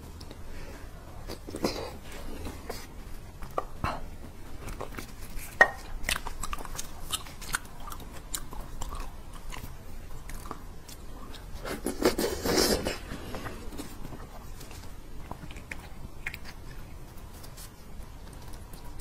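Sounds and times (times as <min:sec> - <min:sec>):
close chewing with wet smacks: 0:03.4 - 0:12.2, 0:13.4 - 0:19.0.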